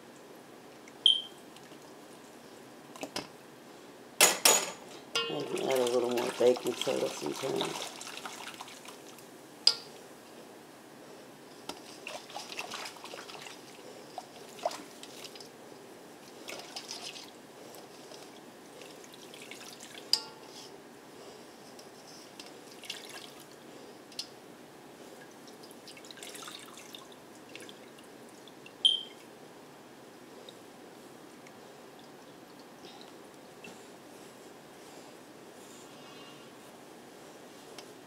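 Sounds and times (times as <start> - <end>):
small splashes: 5.3 - 9.2, 12.0 - 13.7, 25.4 - 28.6.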